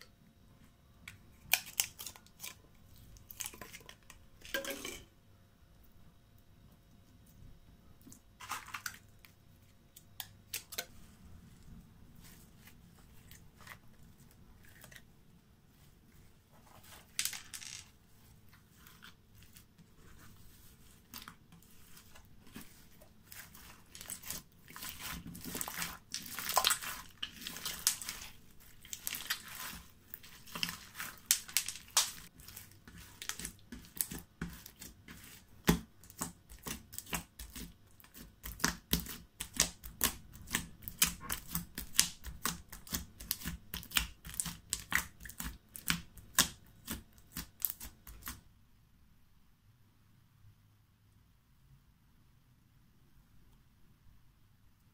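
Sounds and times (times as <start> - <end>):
slime squished by hand: 20.6 - 48.4.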